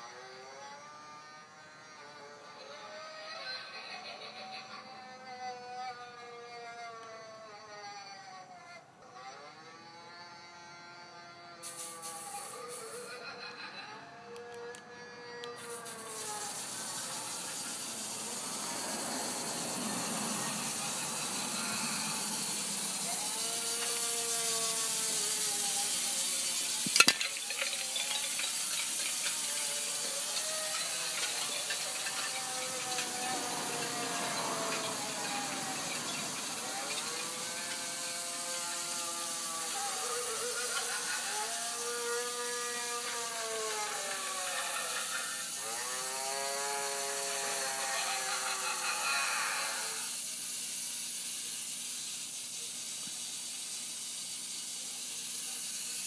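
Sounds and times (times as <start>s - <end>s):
mechanical rattling whir with hiss: 0.0s - 8.4s, 9.1s - 56.0s
faint rising and falling tones: 15.7s - 38.7s.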